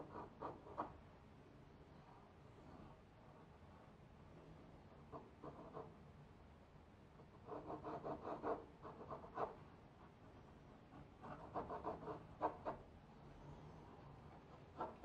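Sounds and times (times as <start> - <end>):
pencil scratching on paper: 0.0 - 1.0, 5.0 - 6.0, 7.2 - 12.9, 14.4 - 15.0.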